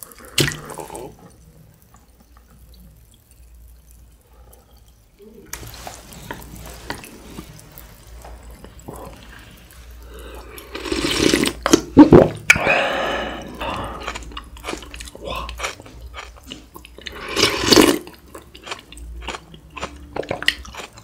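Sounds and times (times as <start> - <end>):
broth dripping and splashing: 0.0 - 21.0
loud slurp: 10.2 - 14.4, 17.1 - 18.1.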